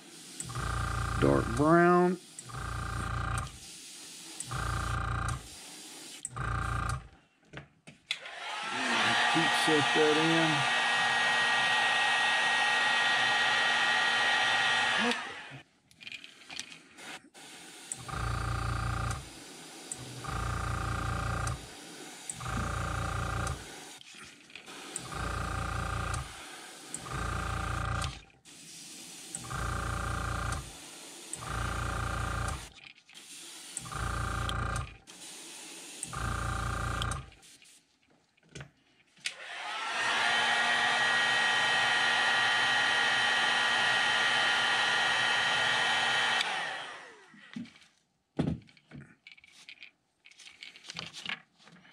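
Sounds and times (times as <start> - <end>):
airbrush spraying bursts: 0.0 - 6.3, 8.4 - 15.6, 16.9 - 37.8
hot-air dryer running: 8.2 - 15.6, 24.7 - 28.1, 39.3 - 47.5.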